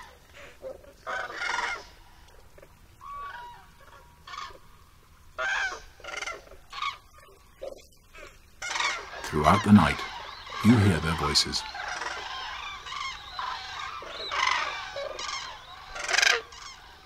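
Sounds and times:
cranes trumpeting calls: 0.0s - 7.4s, 8.0s - 17.0s.

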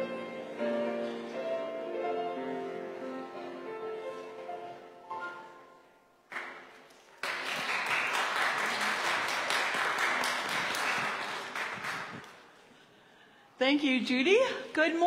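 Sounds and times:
congregation applauding: 6.3s - 12.5s.

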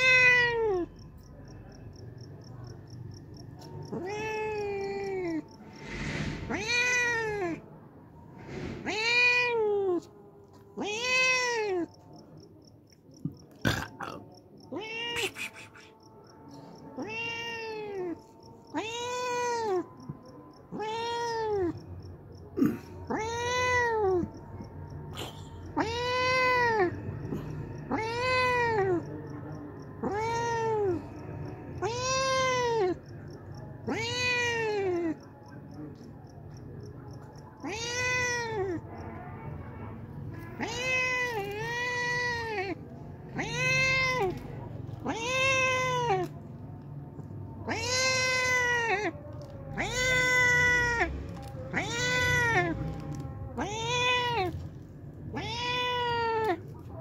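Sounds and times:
cat meowing: 0.0s - 1.5s, 3.3s - 7.6s, 10.8s - 12.0s, 14.6s - 16.0s, 16.9s - 21.8s, 22.6s - 24.4s, 25.7s - 31.2s, 31.8s - 35.5s, 37.1s - 39.6s, 40.3s - 46.4s, 47.6s - 56.9s.

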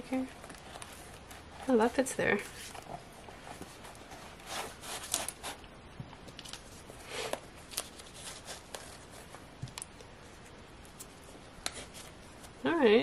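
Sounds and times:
paper and card rustling: 0.2s - 5.6s, 6.3s - 9.8s.

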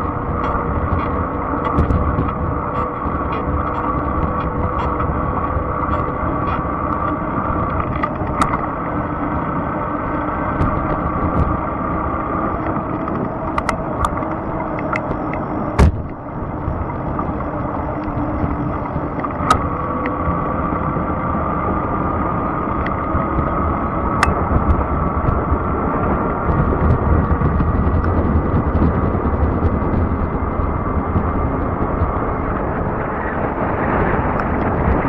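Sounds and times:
bike knocks and rattles: 0.0s - 8.7s, 12.6s - 16.2s
electric bike motor whine: 0.0s - 35.0s
wheels rumbling on trail: 0.0s - 35.0s.

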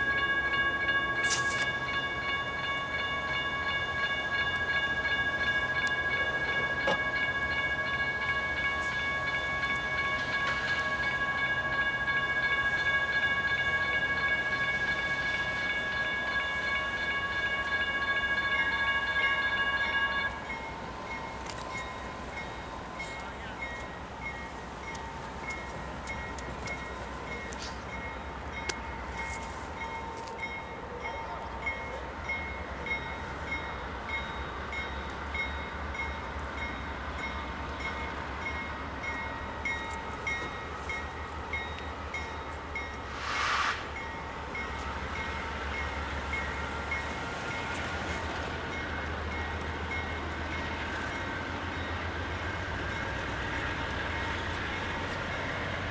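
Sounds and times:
diesel locomotive engine rumble: 0.0s - 55.9s
railroad crossing bell ringing: 0.0s - 55.9s
short hiss: 43.0s - 44.1s.

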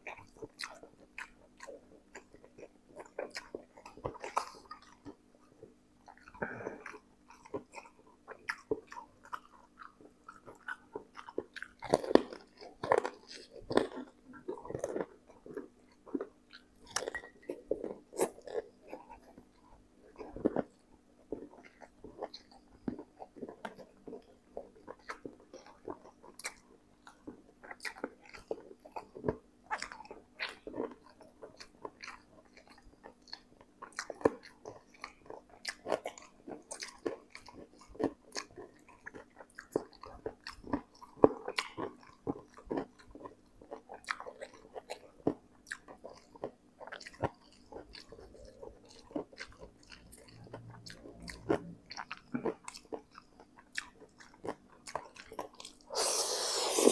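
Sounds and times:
faint steady hum: 0.0s - 56.9s
food crunching: 0.0s - 56.9s
man chewing with lip smacks: 0.0s - 56.9s.

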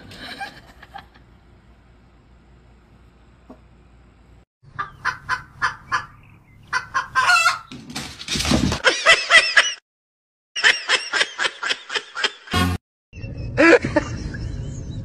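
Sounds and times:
chicken clucking: 4.7s - 7.7s.

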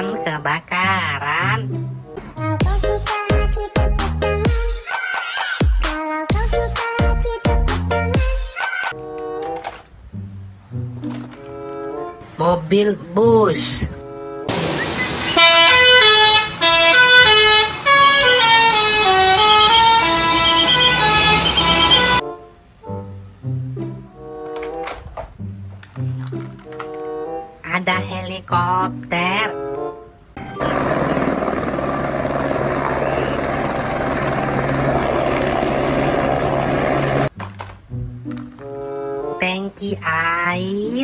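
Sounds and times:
bus musical horn playing tune: 15.3s - 23.4s
helicopter hovering: 30.4s - 37.3s.

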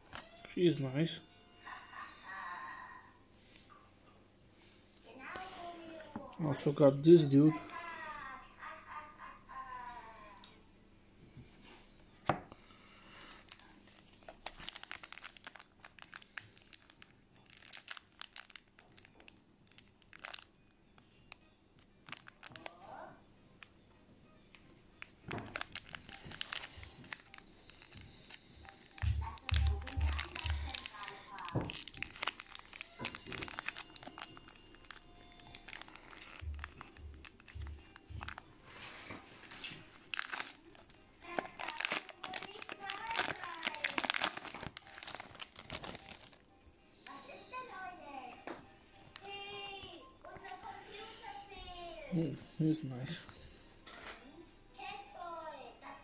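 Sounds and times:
foil wrapper crinkling: 13.2s - 20.8s, 21.8s - 22.9s, 24.5s - 47.4s, 49.0s - 50.0s.

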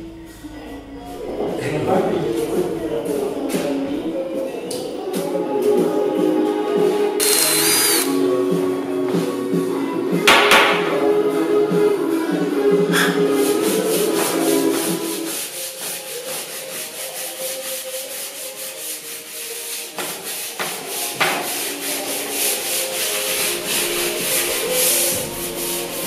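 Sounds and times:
background music: 0.0s - 26.0s
sandpaper on wooden board: 13.4s - 26.0s.

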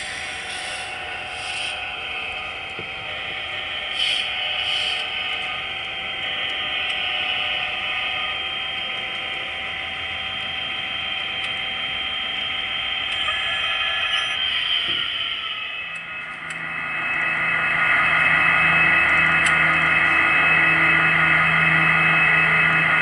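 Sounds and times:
model train motor whirring: 0.0s - 9.5s, 12.3s - 15.9s.

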